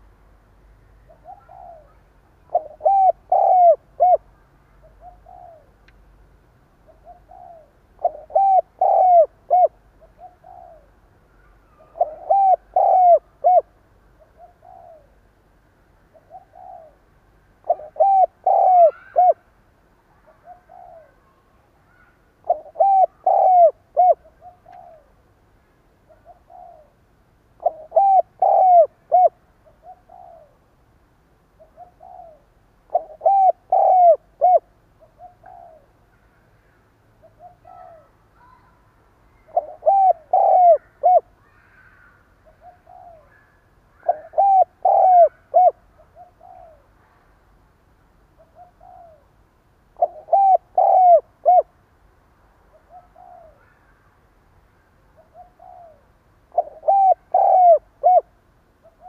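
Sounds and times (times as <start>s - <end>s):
dove cooing: 1.0s - 5.8s, 6.8s - 15.2s, 16.1s - 19.5s, 20.2s - 21.3s, 21.9s - 25.2s, 26.1s - 27.0s, 27.6s - 30.7s, 31.6s - 36.0s, 37.2s - 38.7s, 39.4s - 47.0s, 48.4s - 51.8s, 52.7s - 54.0s, 55.2s - 59.0s.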